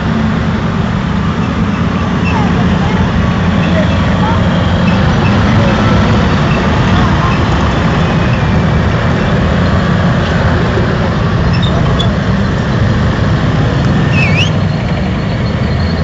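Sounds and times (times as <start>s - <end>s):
heavy engine drone: 0.0s - 16.0s
track rumble: 0.0s - 16.0s
short high squeal: 14.1s - 16.0s.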